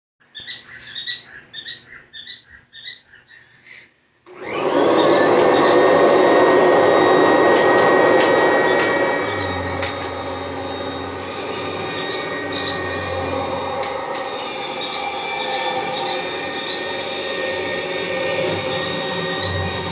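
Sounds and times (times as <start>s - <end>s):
upright vacuum motor whining: 4.3s - 19.9s
low hum: 5.2s - 19.9s.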